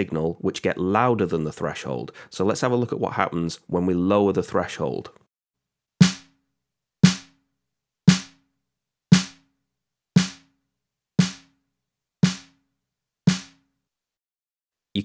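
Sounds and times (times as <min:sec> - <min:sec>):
snare drum hits: 0:06.0 - 0:06.3, 0:07.0 - 0:07.3, 0:08.1 - 0:08.4, 0:09.1 - 0:09.4, 0:10.2 - 0:10.5, 0:11.2 - 0:11.5, 0:12.2 - 0:12.6, 0:13.3 - 0:13.6.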